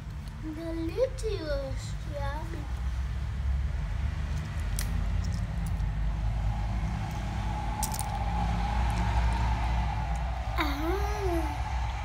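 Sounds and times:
low rumble: 2.7 - 12.0
faint hum: 4.9 - 12.0.

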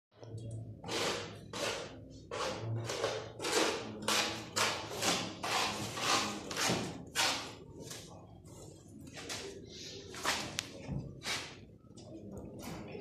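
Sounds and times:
trowel scraping adhesive: 0.8 - 7.6.

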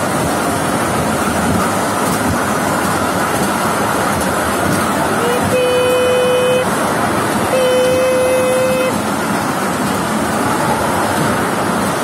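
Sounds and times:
small train running on rails: 0.0 - 12.0
train horn held note: 5.2 - 6.7, 7.5 - 9.0.

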